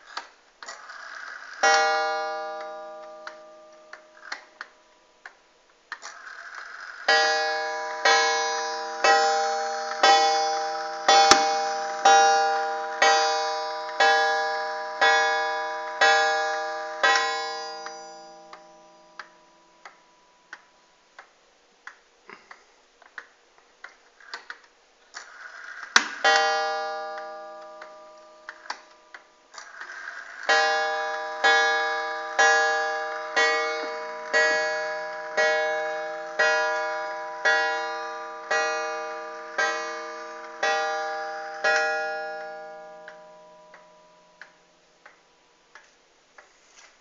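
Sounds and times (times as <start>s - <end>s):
clock gong strokes: 1.6s - 4.6s, 7.0s - 20.7s, 30.0s - 44.8s.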